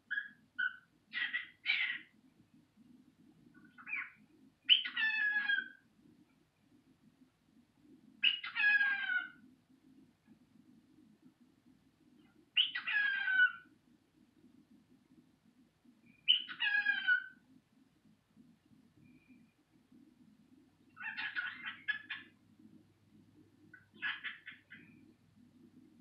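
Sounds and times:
cockatiel chirp: 0.1 - 2.1, 3.8 - 5.8, 8.2 - 9.4, 12.6 - 13.7, 16.2 - 17.4, 21.0 - 22.4, 23.8 - 24.9
cockatiel calls with falling pitch: 4.7 - 5.8, 8.2 - 9.4, 12.6 - 13.6, 16.3 - 17.4, 21.0 - 22.2.

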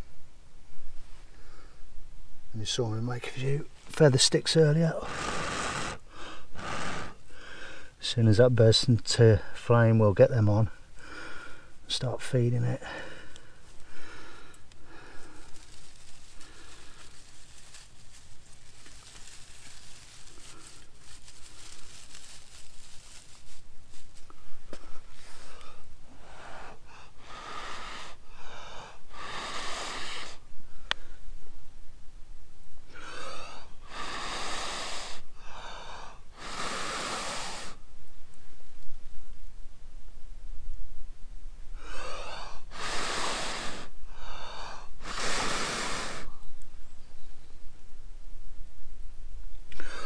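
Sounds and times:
person blowing hard: 5.0 - 6.0, 6.6 - 7.2, 29.2 - 30.4, 33.0 - 35.2, 36.4 - 37.8, 41.9 - 43.9, 45.0 - 46.3
quick breaths drawn in: 5.0 - 8.0, 10.9 - 11.8, 12.8 - 31.3, 32.9 - 38.7, 41.7 - 46.6, 49.7 - 50.0.

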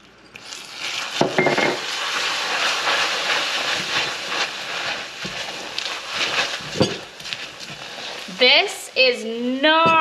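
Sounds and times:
hot syrup hissing and sizzling: 0.4 - 10.0.

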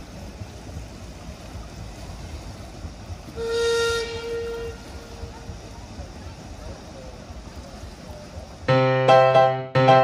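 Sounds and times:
low steady rumble: 0.0 - 9.9
steam whistle blast: 3.4 - 5.2.

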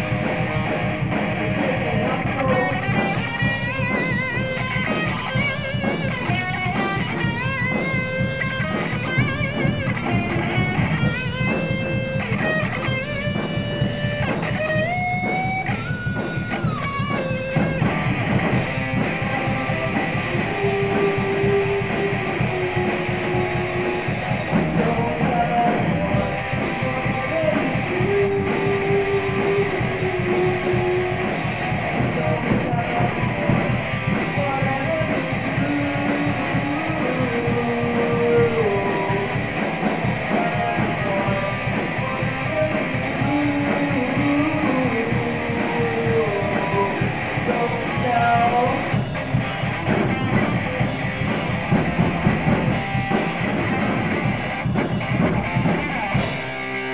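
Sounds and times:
drum kit: 0.0 - 56.9
electric guitars: 0.0 - 56.9.

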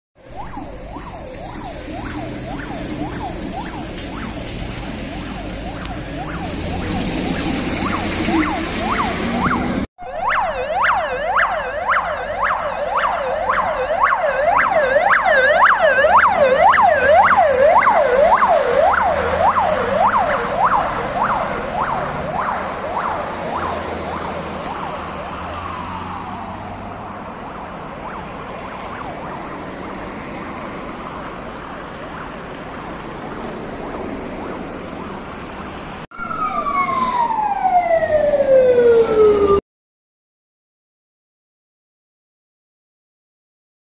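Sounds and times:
siren yelp warbling: 0.2 - 26.6, 27.8 - 32.7, 36.1 - 39.6
siren winding down: 0.2 - 26.7, 27.9 - 32.8, 36.1 - 39.6
street traffic: 0.2 - 39.6.

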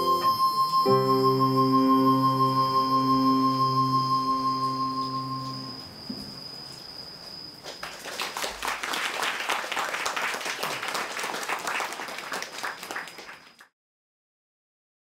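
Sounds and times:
audience applauding: 7.6 - 13.7.

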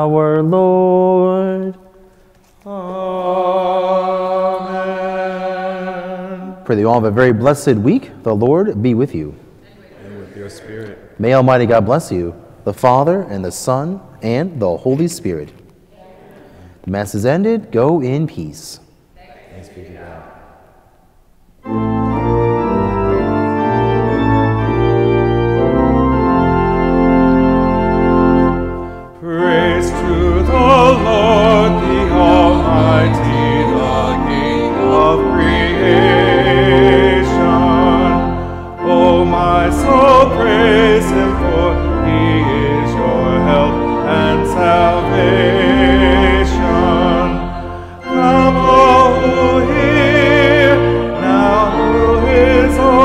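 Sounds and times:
church organ playing: 0.0 - 1.8, 2.7 - 9.4, 11.2 - 15.5, 21.6 - 53.0
person singing with vibrato: 0.0 - 7.0, 29.1 - 53.0
singer breathing: 2.0 - 2.5, 16.3 - 16.8.

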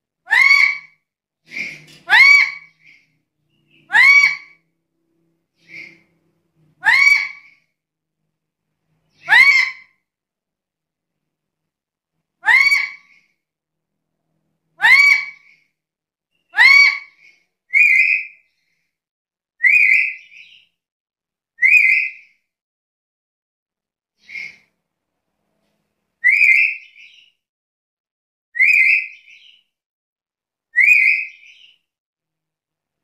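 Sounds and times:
parrot whistled calls: 0.3 - 0.9, 1.5 - 3.1, 3.7 - 4.6, 6.8 - 7.6, 14.8 - 15.6, 16.5 - 18.5, 19.6 - 20.6, 21.6 - 22.2, 24.2 - 24.7, 26.2 - 27.3, 28.6 - 29.6, 30.7 - 31.8.

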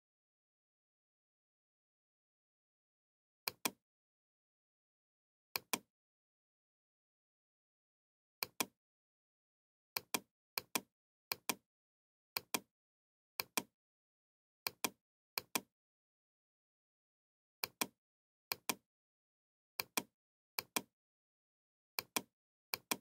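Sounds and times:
computer mouse clicking: 8.4 - 8.7, 12.4 - 12.7, 14.7 - 15.7, 17.6 - 18.8, 19.8 - 20.9, 22.0 - 23.0.

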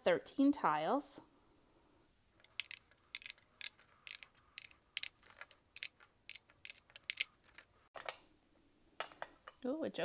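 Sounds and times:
mahjong tiles clicking: 2.4 - 7.7.

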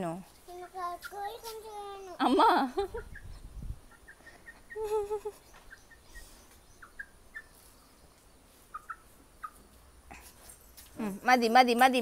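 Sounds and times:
hen calling: 0.6 - 9.8.

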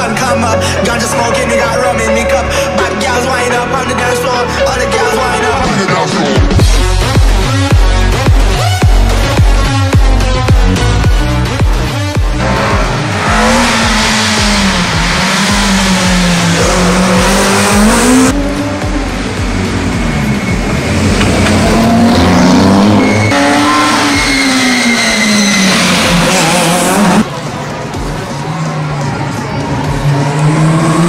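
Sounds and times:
car engine revving: 6.6 - 31.0
tyres squealing: 20.0 - 27.2.

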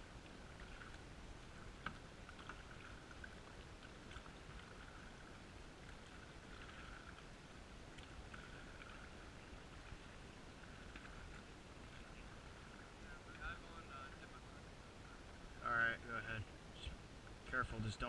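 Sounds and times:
muffled paddle strokes in water: 0.0 - 13.6.

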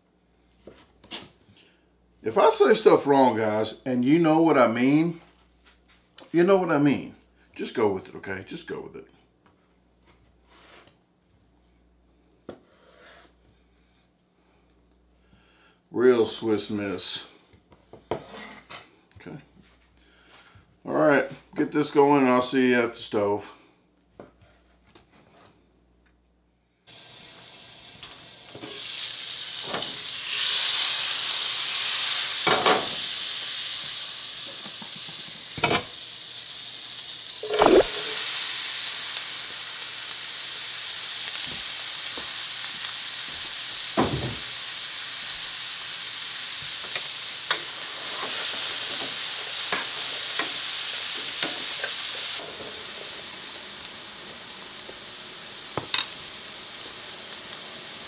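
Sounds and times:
utensil scraping a pan: 18.2 - 18.9
food sizzling in a pan: 26.9 - 58.0.

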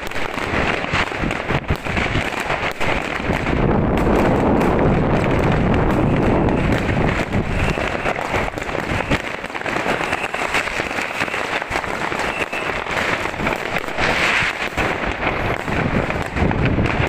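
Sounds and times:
firecrackers crackling and popping: 0.0 - 17.0
loud firework bangs: 0.0 - 17.0
low booming: 2.8 - 9.2, 13.2 - 17.0.

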